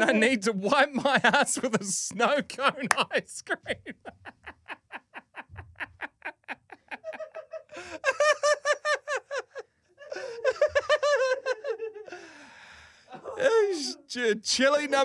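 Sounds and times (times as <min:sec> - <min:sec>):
men laughing hard: 0:00.0 - 0:12.4.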